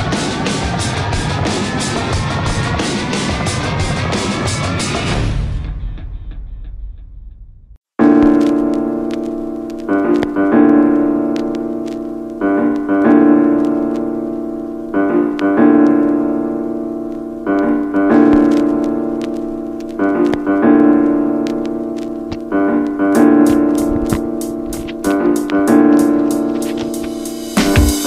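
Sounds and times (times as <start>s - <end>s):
piano chords: 8.0s - 28.0s.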